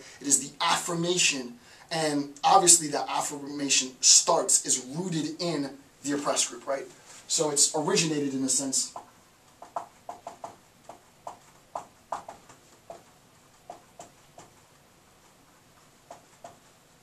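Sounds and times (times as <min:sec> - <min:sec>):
marker tapping on whiteboard: 0:08.9 - 0:14.6, 0:16.0 - 0:16.7.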